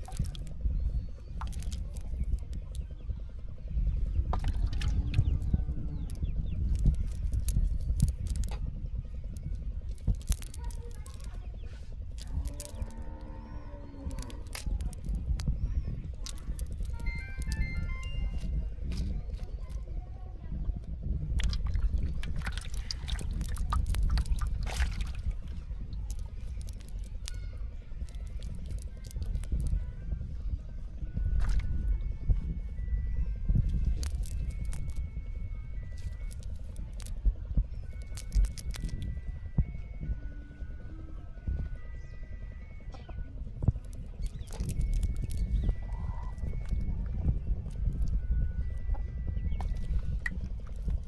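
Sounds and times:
low handling rumble: 0.0 - 51.0
wet squelching of fishing net: 21.4 - 25.4.

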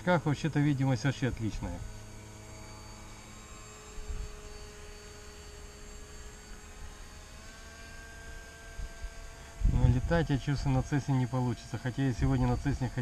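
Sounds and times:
electric motor and propeller whine: 0.0 - 13.0
wind rumble on microphone: 4.0 - 4.4, 8.8 - 10.8.

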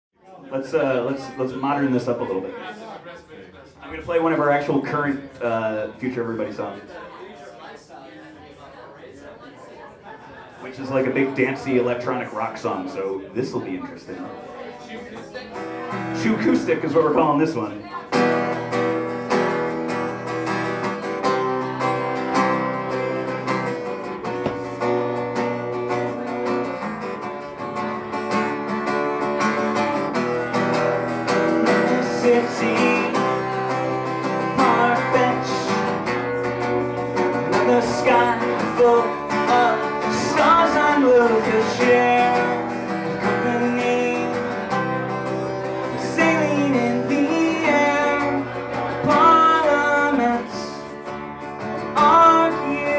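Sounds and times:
acoustic guitar strumming: 15.4 - 52.9
man singing: 15.9 - 18.0, 30.3 - 52.9.

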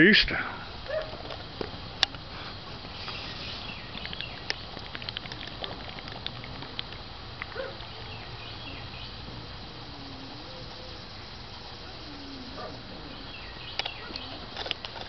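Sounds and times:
faint outdoor hiss: 0.0 - 15.0
person gulping and swallowing: 4.0 - 7.0.

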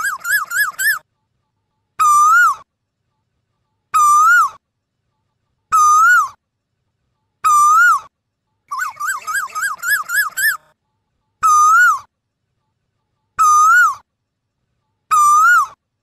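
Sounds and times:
koel whistled calls: 0.0 - 1.0, 8.7 - 10.6, 11.4 - 12.1, 15.1 - 15.8.

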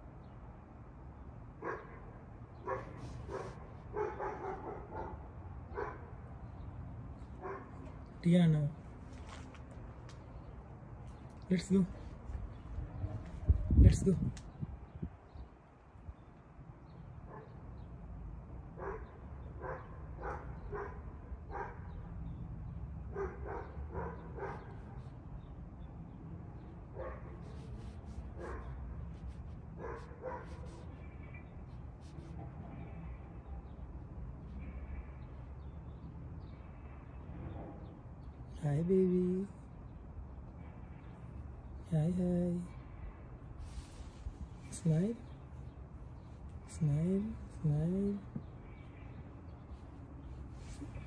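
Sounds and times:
dog barking: 1.6 - 6.2, 7.4 - 7.8, 17.2 - 17.6, 18.8 - 22.0, 23.1 - 25.2, 26.9 - 28.9, 29.8 - 31.1.

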